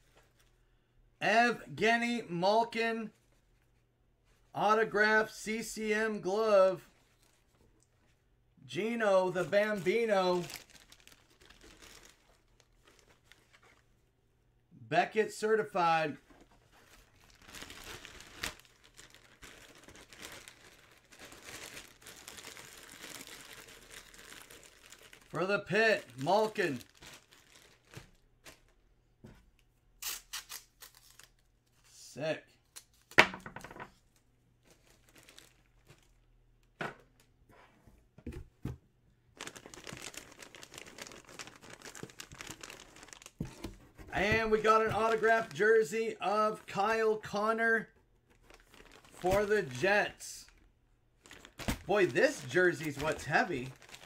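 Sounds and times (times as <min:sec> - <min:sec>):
plastic wrapping crinkling: 0:09.3 - 0:14.0, 0:16.3 - 0:25.4, 0:26.0 - 0:28.8, 0:32.9 - 0:36.8, 0:39.3 - 0:45.6, 0:48.1 - 0:54.0.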